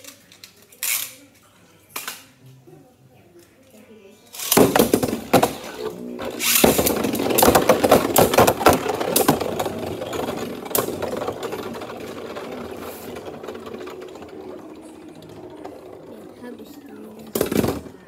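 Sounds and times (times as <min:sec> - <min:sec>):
spinning tops clashing: 0:04.4 - 0:17.9.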